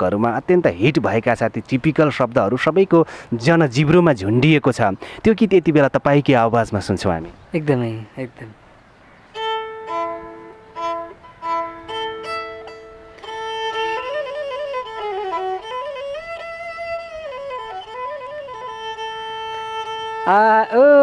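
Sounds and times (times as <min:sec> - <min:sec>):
bowed string solo: 0:09.4 - 0:21.0.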